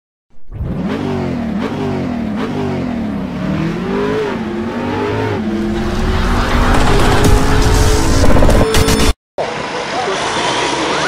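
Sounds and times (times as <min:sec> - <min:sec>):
car engine revving: 0:00.5 - 0:09.1.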